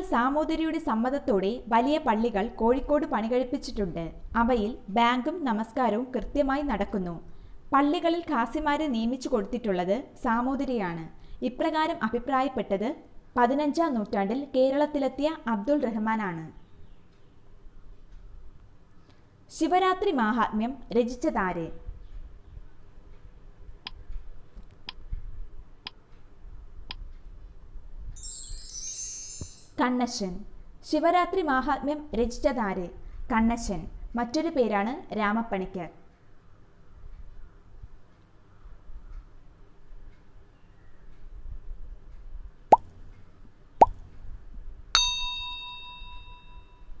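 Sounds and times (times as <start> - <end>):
bell ding: 28.2 - 29.7, 45.0 - 46.9
high shimmering chime: 28.2 - 29.8.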